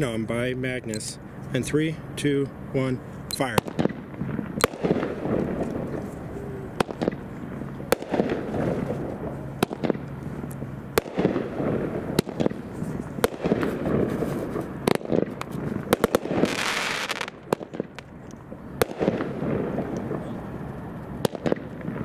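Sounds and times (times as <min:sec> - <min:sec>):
steady rumble: 0:00.0 - 0:22.0
fireworks cake firing shots: 0:03.3 - 0:18.2, 0:18.8 - 0:20.4, 0:21.1 - 0:22.0.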